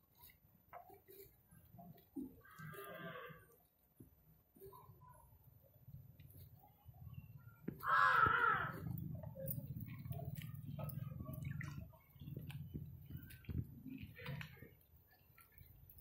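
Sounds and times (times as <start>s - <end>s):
crow cawing: 2.4s - 3.4s, 7.8s - 8.9s.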